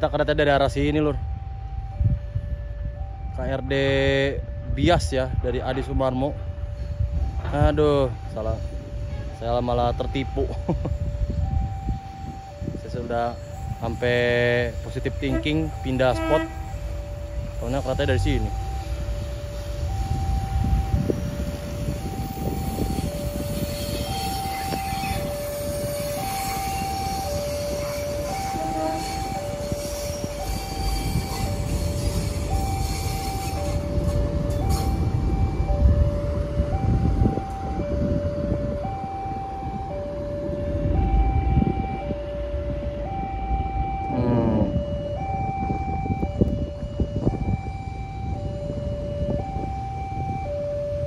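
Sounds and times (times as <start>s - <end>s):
level-crossing alarm two tones: 0.0s - 51.0s
diesel railcar departing: 6.3s - 51.0s
train rolling past rumble: 10.9s - 41.8s.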